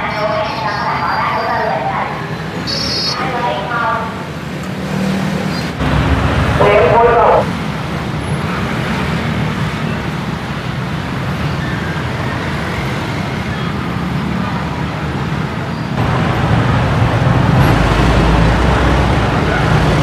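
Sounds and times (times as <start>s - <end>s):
street traffic passing: 0.0s - 20.0s
vehicle engine hum: 16.0s - 20.0s.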